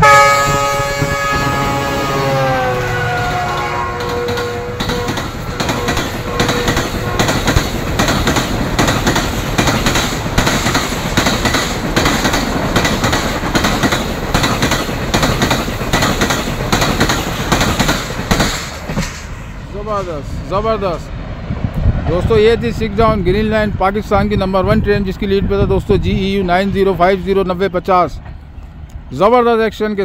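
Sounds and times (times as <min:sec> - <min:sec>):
train horn: 0:00.0 - 0:07.8
train wheels clattering over joints: 0:03.3 - 0:20.2.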